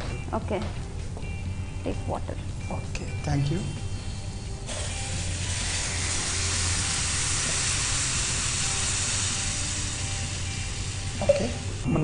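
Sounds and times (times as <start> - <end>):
water sizzling in hot oil: 4.7 - 11.8.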